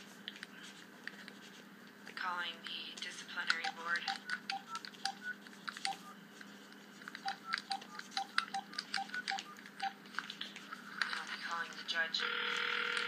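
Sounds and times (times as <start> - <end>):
keypad tapping clicks: 3.5 - 6.0, 7.1 - 10.0
telephone keypad beeps: 3.6 - 6.2, 7.2 - 10.0.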